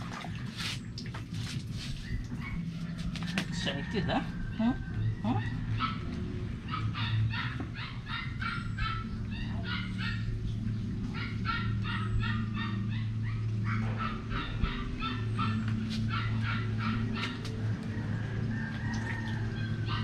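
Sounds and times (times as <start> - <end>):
puppy yelping and whining: 5.0 - 17.6.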